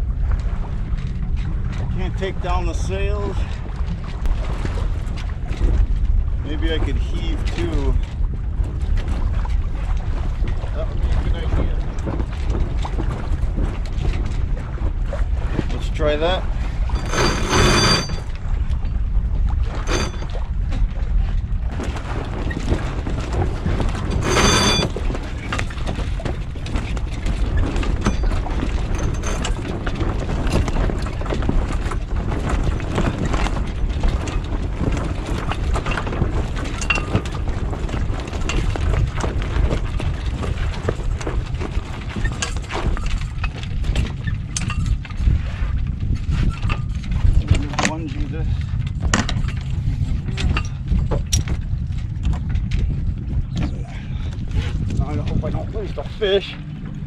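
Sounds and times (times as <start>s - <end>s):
wind buffeting microphone: 0.0s - 57.0s
high squeak: 17.0s - 18.2s, 24.2s - 24.9s
rigging clicks and knocks: 21.7s - 45.3s, 48.8s - 53.8s.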